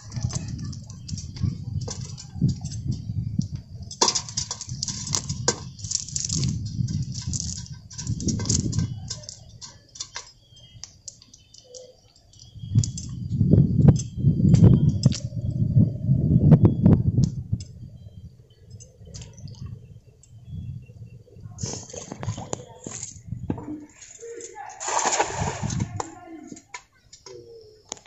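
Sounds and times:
net weights clicking and rattling: 0:03.8 - 0:13.2.

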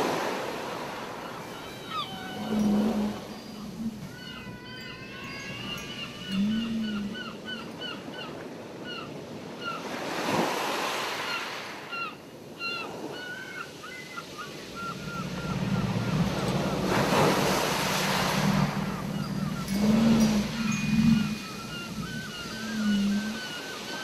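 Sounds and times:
ocean surf washing in: 0:00.0 - 0:04.2, 0:14.3 - 0:24.0
seagull calls: 0:01.2 - 0:09.9, 0:11.3 - 0:24.0
low steady drone: 0:14.8 - 0:23.4.

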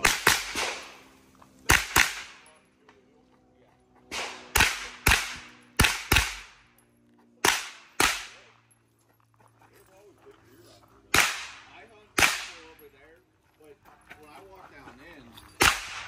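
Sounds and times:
pistol shots with echo: 0:00.0 - 0:01.0, 0:01.7 - 0:02.5, 0:04.1 - 0:06.7, 0:07.4 - 0:08.6, 0:11.1 - 0:12.8, 0:15.6 - 0:16.0.

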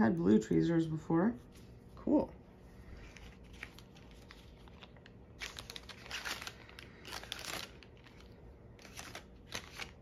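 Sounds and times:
plastic crinkling: 0:03.0 - 0:10.0.

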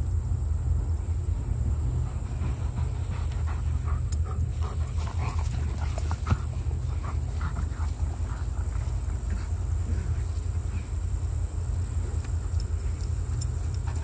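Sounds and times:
steady low rumble: 0:00.0 - 0:14.0
dog panting: 0:01.9 - 0:11.0.

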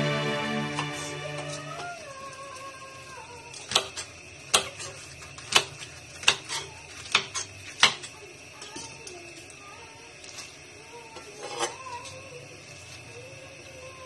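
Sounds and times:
knife chopping cabbage on cutting board: 0:03.6 - 0:08.1.

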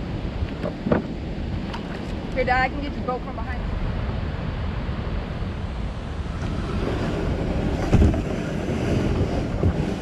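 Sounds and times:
wind buffeting microphone: 0:00.0 - 0:10.0
dull thump: 0:07.8 - 0:08.3.

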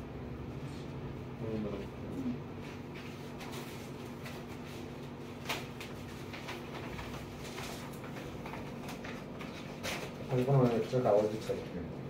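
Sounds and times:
low room hum: 0:00.0 - 0:12.0
paper rustling: 0:02.9 - 0:11.7.

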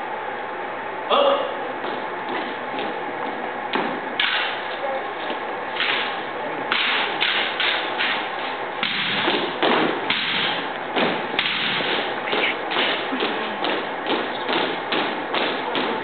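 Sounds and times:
heels stomping: 0:06.7 - 0:16.0.

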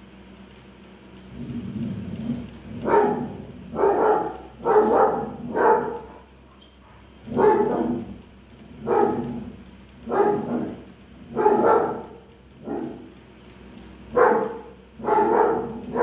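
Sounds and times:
dog barking: 0:02.8 - 0:08.2, 0:08.8 - 0:09.5, 0:10.1 - 0:13.1, 0:14.1 - 0:16.0.

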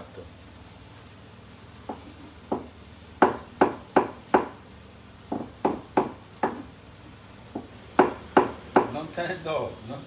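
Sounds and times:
cleaver chopping on wooden board: 0:01.9 - 0:04.6, 0:05.3 - 0:06.7, 0:07.5 - 0:09.0.

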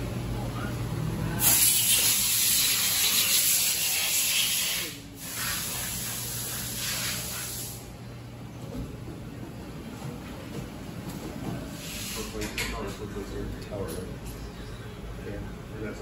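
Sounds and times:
pressurized air hissing: 0:01.4 - 0:07.9, 0:11.8 - 0:12.4.

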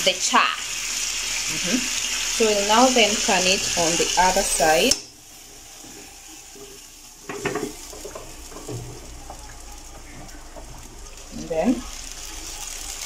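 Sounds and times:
chicken sizzling in a pan: 0:00.0 - 0:13.0
pan clattering on stove grate: 0:06.6 - 0:09.4
faint knocks: 0:06.6 - 0:10.8.

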